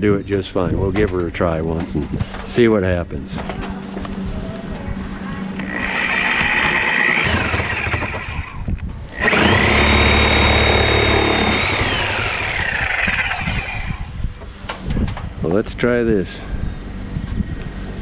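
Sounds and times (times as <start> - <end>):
saw blade rumbling in wood: 5.6 - 14.1
reciprocating saw motor whine: 5.6 - 14.2.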